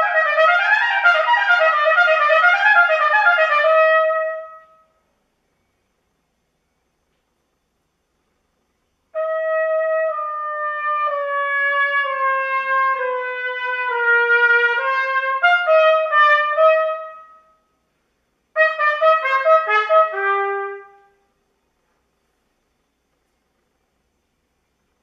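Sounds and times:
solo trumpet playing: 0.0s - 5.0s, 9.1s - 17.7s, 18.5s - 21.3s.

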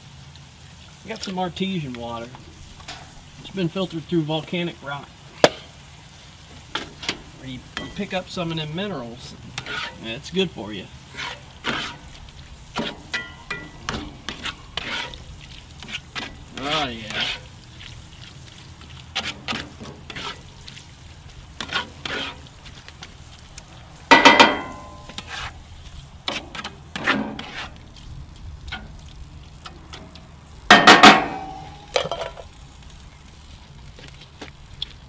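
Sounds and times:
meat sizzling in a skillet: 0.0s - 35.0s
metal scraping a pan: 2.5s - 4.5s, 6.6s - 22.6s, 24.1s - 28.0s, 28.6s - 32.5s
metal utensil stirring: 6.7s - 23.1s, 24.1s - 25.6s, 26.2s - 28.0s.

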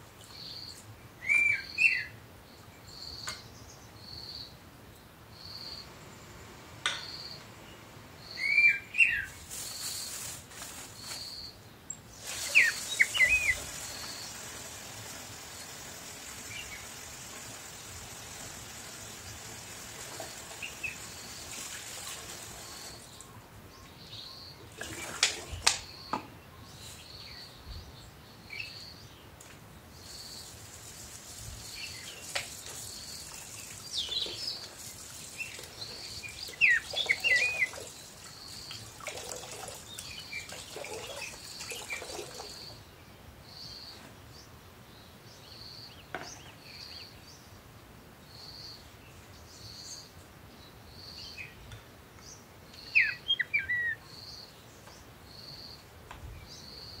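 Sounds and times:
splashes and knocks: 24.8s - 25.8s.

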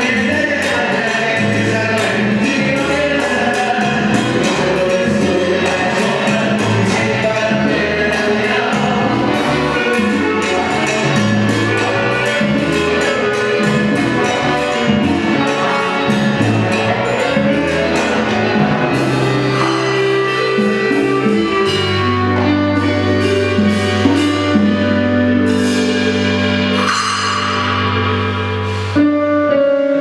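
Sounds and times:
drum and conga rhythm: 0.0s - 30.0s
live band playing: 0.0s - 30.0s
cymbal crashes: 25.5s - 29.1s.

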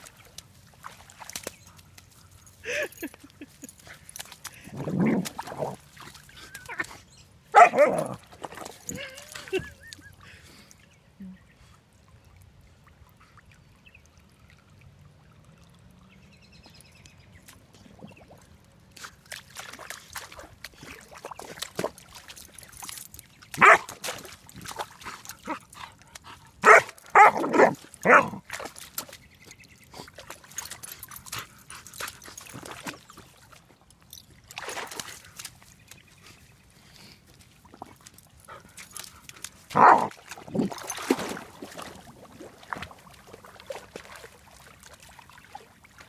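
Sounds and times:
water splashing and bubbling: 0.0s - 2.0s, 4.4s - 6.8s, 7.6s - 10.4s, 11.8s - 46.0s
puppy barking into water: 7.5s - 9.1s, 23.6s - 24.1s, 26.6s - 28.7s, 39.7s - 41.9s.

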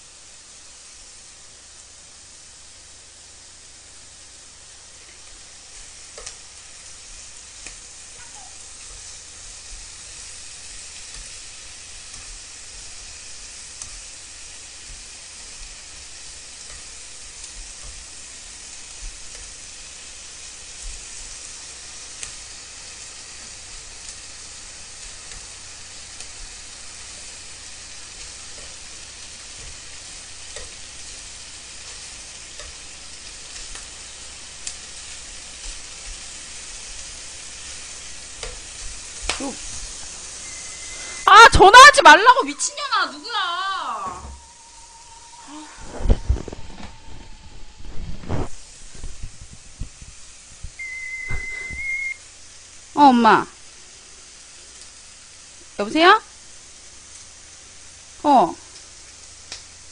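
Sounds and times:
pork sizzling in a frying pan: 0.0s - 59.9s
metal tongs clicking on pan: 31.9s - 33.9s.

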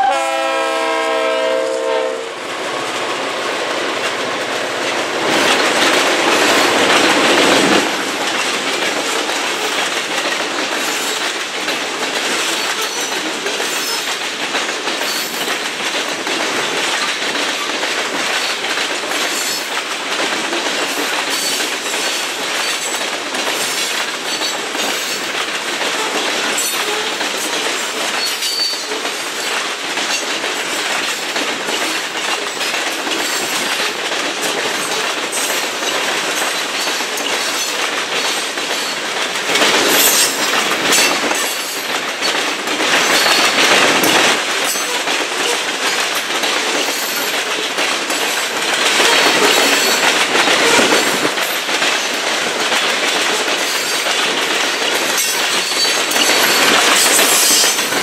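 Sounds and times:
freight train rolling past: 0.0s - 58.0s
clicks over rail joints: 3.8s - 58.0s.

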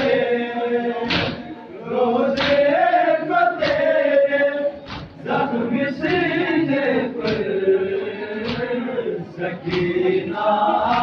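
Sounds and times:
men chanting in unison: 0.0s - 11.0s
chest-beating slaps: 1.0s - 1.5s, 2.3s - 2.7s, 3.6s - 4.0s, 4.8s - 5.2s, 7.2s - 7.6s, 8.4s - 8.8s, 9.6s - 10.0s.

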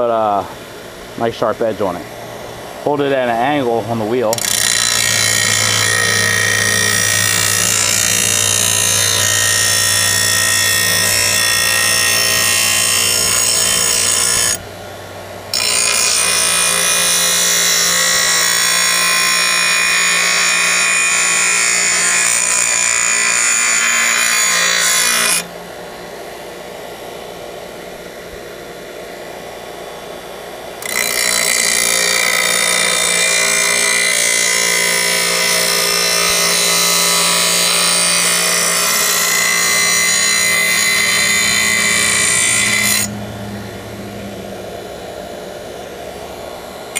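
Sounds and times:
grinder motor hum: 0.0s - 46.9s
grinding wheel rasping on steel: 2.9s - 14.6s, 15.5s - 25.5s, 30.8s - 43.2s.

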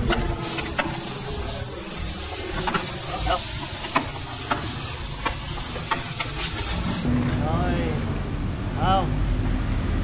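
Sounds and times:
steady hiss: 0.2s - 7.1s.

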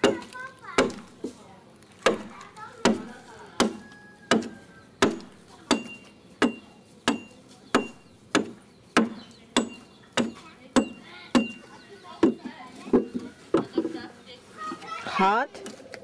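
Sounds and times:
hand tool chopping wood: 0.0s - 1.4s, 2.0s - 11.6s.

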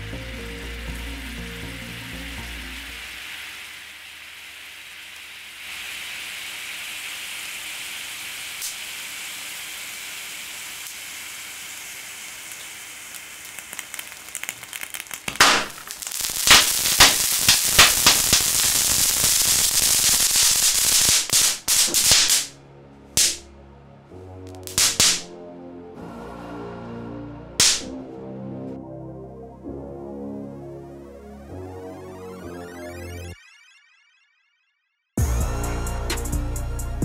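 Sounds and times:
liquid boiling off with hiss: 0.0s - 22.4s
loud cracks and pops: 8.6s - 8.8s, 12.5s - 22.6s, 23.2s - 23.5s, 24.5s - 25.3s, 27.6s - 28.0s
crackling: 10.8s - 22.6s, 23.2s - 23.5s, 24.5s - 25.3s, 27.6s - 28.0s.

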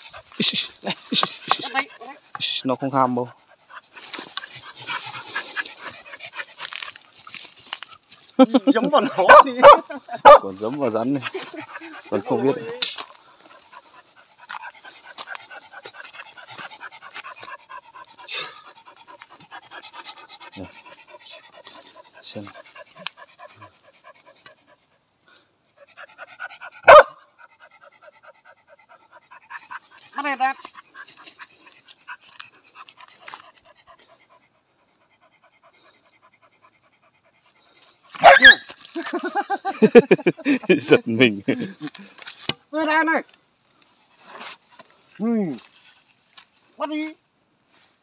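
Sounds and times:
dog panting: 3.2s - 8.0s, 11.1s - 25.0s, 25.7s - 38.1s.

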